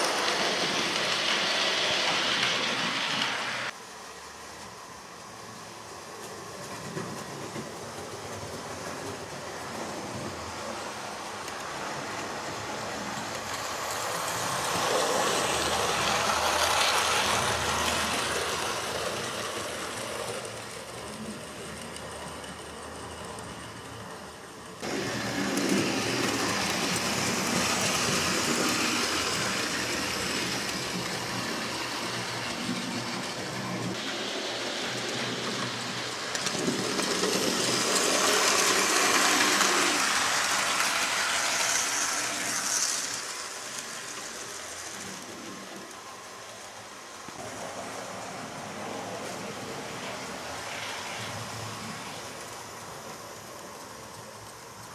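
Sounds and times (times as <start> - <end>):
model train wheels rattling: 5.6 - 47.4.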